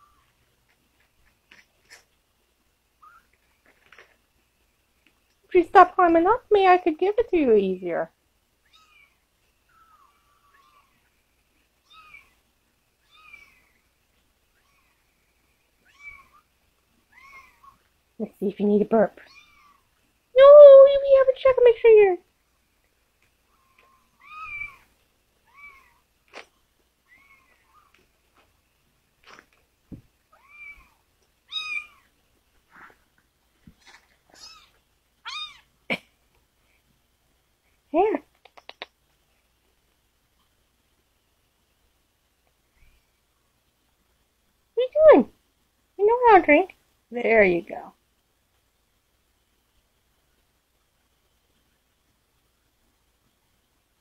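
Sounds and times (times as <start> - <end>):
kittens mewing: 23.5 - 24.9, 30.3 - 32.1
kitten mewing: 23.6 - 24.8.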